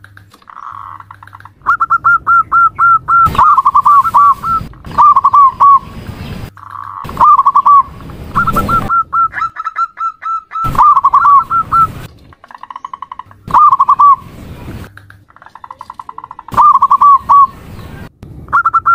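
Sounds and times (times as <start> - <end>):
sharp clicks: 0.0 - 1.9, 14.8 - 16.8
dove cooing: 0.5 - 5.9, 6.6 - 14.3, 15.3 - 17.5.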